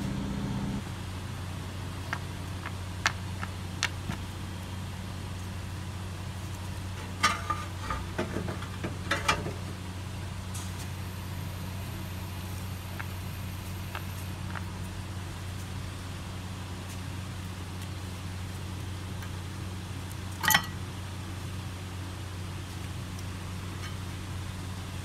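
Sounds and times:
low hum: 0.0s - 4.5s.

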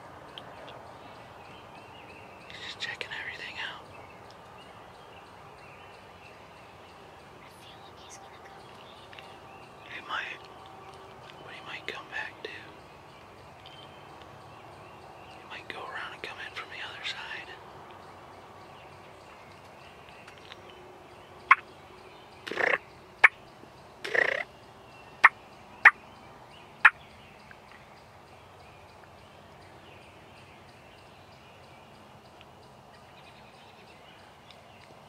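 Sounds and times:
turkey gobbling and calling: 22.5s - 23.4s, 24.0s - 24.5s.

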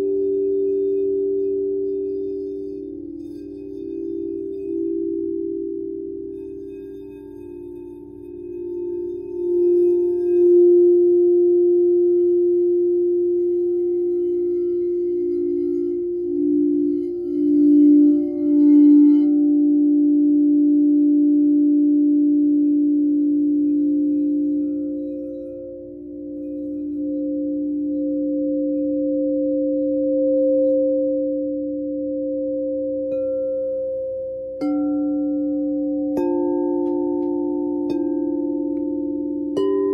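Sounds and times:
lower pulsing singing bowl tone: 0.0s - 39.9s
singing bowl steady tone: 0.0s - 39.9s
singing bowl struck with mallet: 27.0s - 39.9s.

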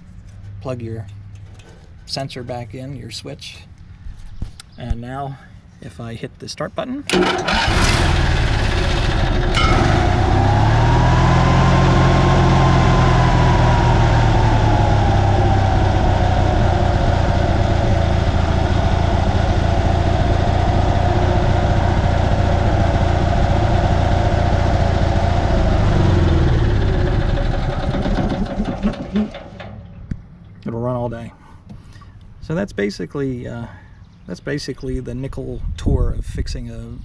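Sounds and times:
generator engine running: 7.1s - 30.0s.

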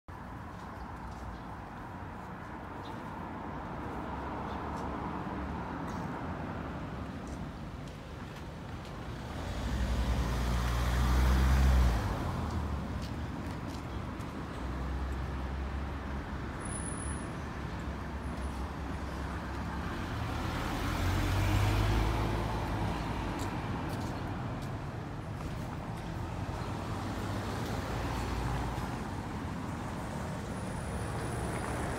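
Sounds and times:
rumble of passing vehicles: 0.1s - 31.9s.

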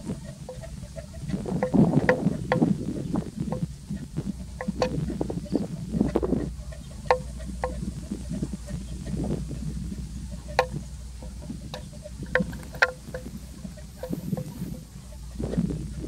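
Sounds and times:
wind rumbling on microphone: 0.0s - 16.0s
sharp ringing knocks: 3.4s - 5.7s, 6.9s - 8.9s, 10.4s - 15.1s.

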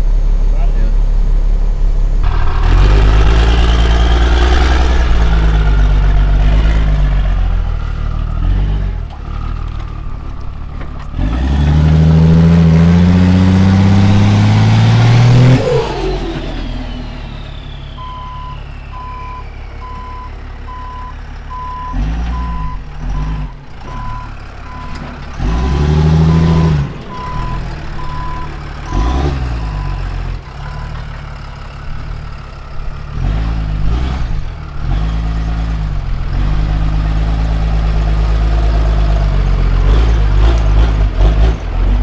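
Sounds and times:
diesel truck engine revving: 0.0s - 42.0s
reversing alarm beeping: 16.9s - 31.1s.

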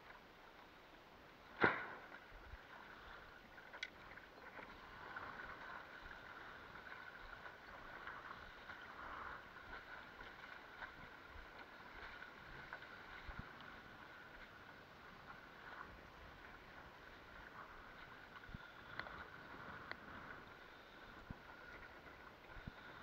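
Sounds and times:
water lapping along board hull: 0.0s - 23.0s
sharp knock: 1.6s - 2.0s.

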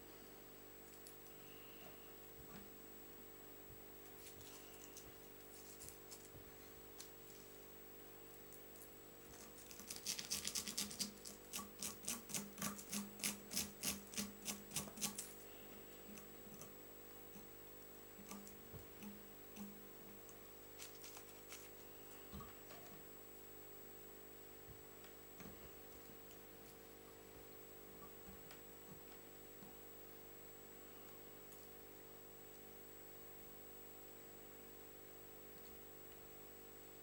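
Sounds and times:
scratchy strokes: 4.2s - 6.3s.

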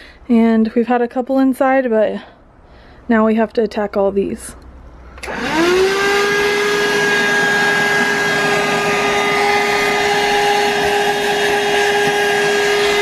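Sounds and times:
hand vacuum motor whine: 5.2s - 13.0s.

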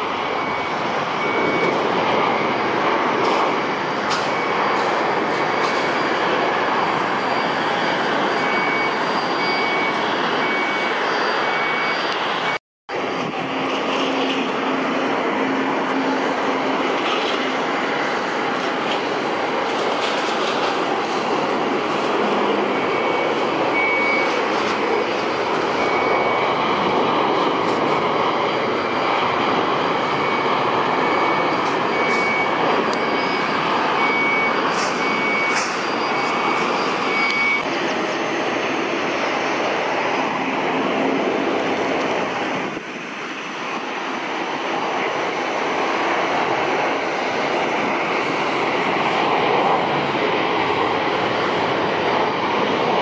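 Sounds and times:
high beeps: 0.0s - 12.6s, 20.8s - 39.5s
jet engine noise: 0.0s - 53.0s.

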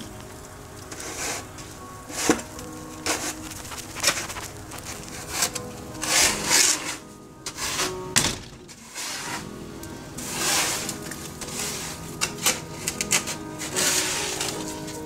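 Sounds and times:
shovel scraping concrete: 3.0s - 8.1s, 8.8s - 9.5s, 10.2s - 15.0s.

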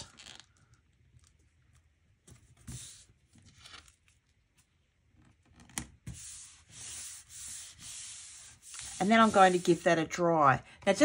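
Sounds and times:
rubbing paper surface: 2.4s - 3.2s, 6.0s - 10.2s.

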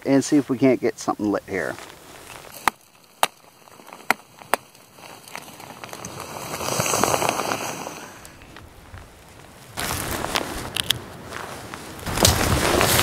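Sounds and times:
bark and wood splitting: 1.8s - 11.0s, 12.0s - 13.0s
hatchet chopping log: 2.5s - 4.8s, 12.1s - 13.0s.

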